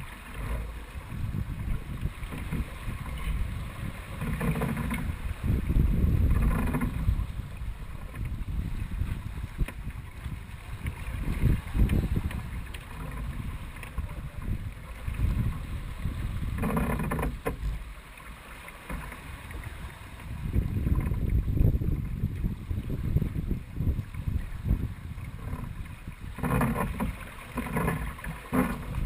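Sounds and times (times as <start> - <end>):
wind buffeting microphone: 0.0 - 17.8, 19.5 - 29.0
water rushing past hull: 0.0 - 29.0.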